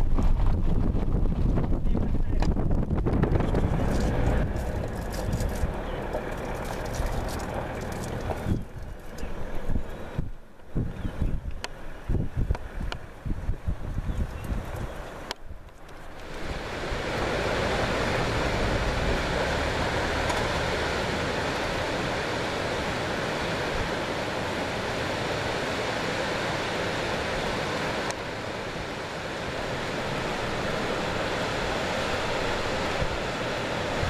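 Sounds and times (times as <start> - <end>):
falling water rushing: 3.4 - 10.1, 16.0 - 34.0.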